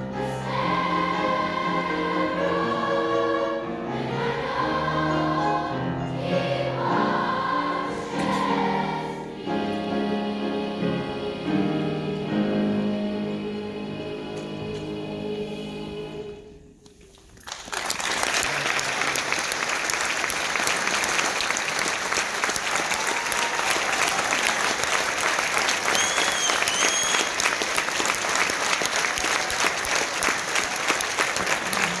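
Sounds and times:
children's choir and piano chord: 0.0s - 16.5s
audience clapping: 17.2s - 32.0s.

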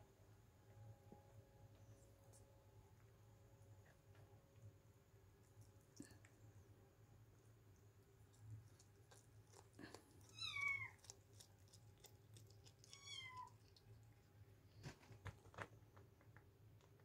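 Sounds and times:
kitten mewing: 9.7s - 11.1s, 12.7s - 13.7s.

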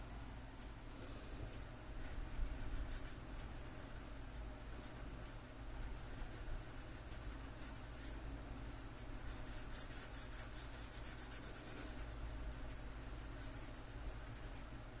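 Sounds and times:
pencil scratching on paper: 6.2s - 12.2s, 13.0s - 14.6s.

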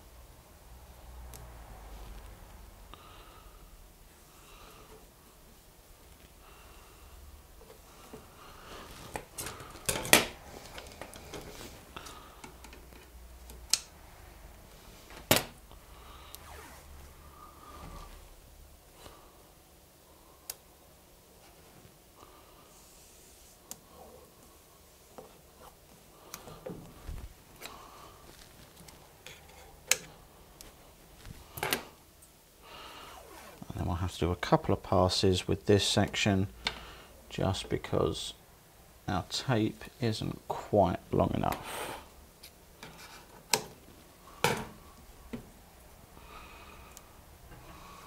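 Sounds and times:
rustling: 16.0s - 18.3s, 22.8s - 29.8s.

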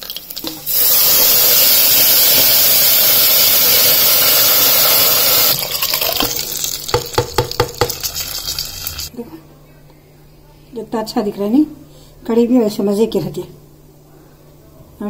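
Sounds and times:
loud sizzling hiss: 0.5s - 5.6s
curry pouring: 5.4s - 9.1s
sharp knocks: 6.9s - 8.0s.

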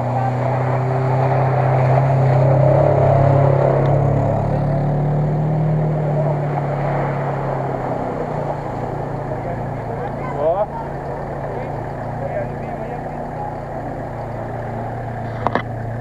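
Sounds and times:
suv engines drone: 0.0s - 16.0s
water churning: 0.0s - 16.0s.

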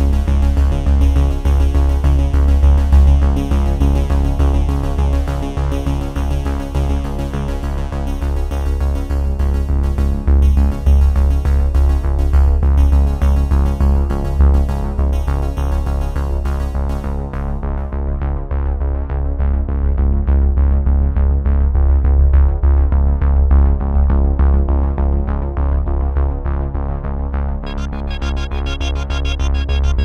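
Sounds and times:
electronic music with heavy bass: 27.5s - 30.0s.

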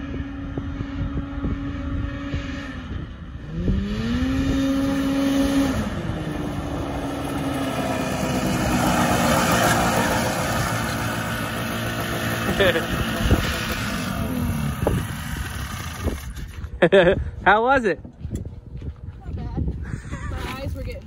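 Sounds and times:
engine revving: 0.0s - 16.7s
tyres sliding on loose dirt: 6.6s - 16.9s.

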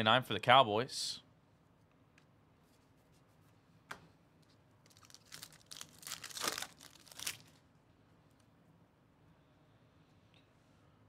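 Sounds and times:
foil pack tearing and crinkling: 4.9s - 7.6s.

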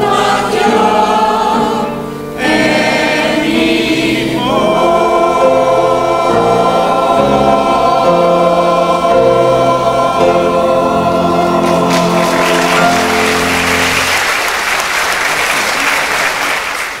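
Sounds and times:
mixed choir holding chord: 0.0s - 14.8s
audience applause: 11.5s - 17.0s.

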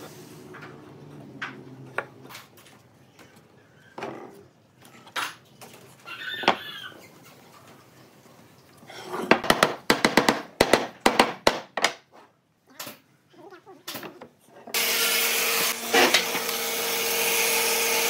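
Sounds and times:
fast sharp wooden knocks: 9.3s - 12.0s
wooden frame pieces knocking: 9.3s - 12.1s.

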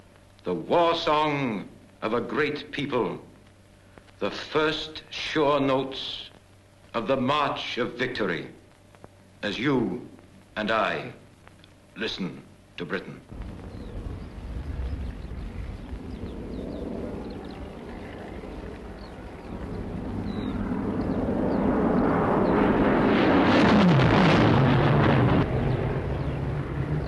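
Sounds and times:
propeller aircraft flying overhead: 13.3s - 27.0s
high bird chirps: 13.6s - 21.7s.

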